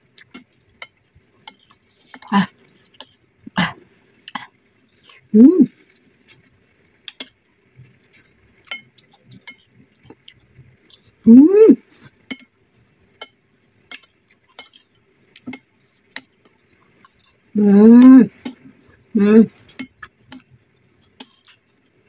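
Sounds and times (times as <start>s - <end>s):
person making vocal sound: 5.4s - 5.7s, 11.3s - 11.8s, 17.6s - 18.3s, 19.2s - 19.5s.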